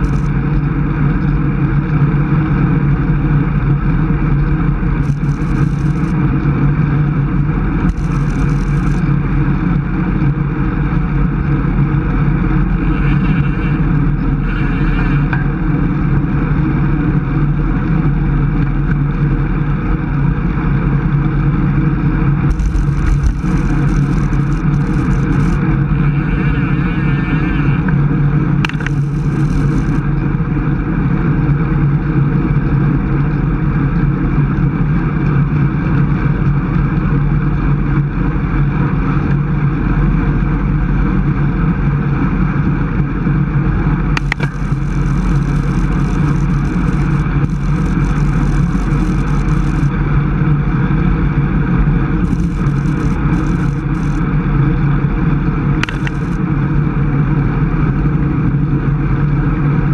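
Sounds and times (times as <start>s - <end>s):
wind and road noise: 0.0s - 59.9s
brief click: 55.8s - 56.3s.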